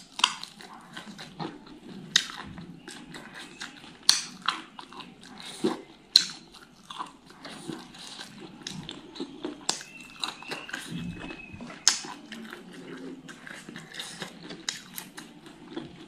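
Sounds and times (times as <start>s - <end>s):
person chewing crunchy food: 0.0s - 16.0s
wet mouth noises: 0.0s - 16.0s.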